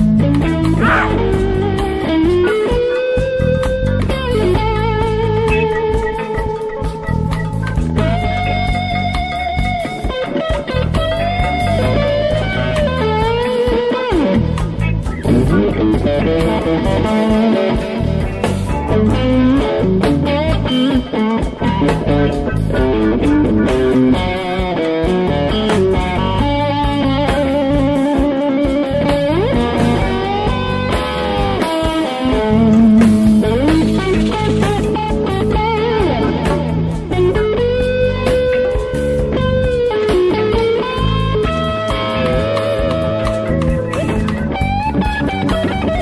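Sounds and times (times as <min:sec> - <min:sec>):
bass: 0:00.0 - 0:46.0
electric guitar lead: 0:00.0 - 0:46.0
steady beat: 0:00.5 - 0:12.3.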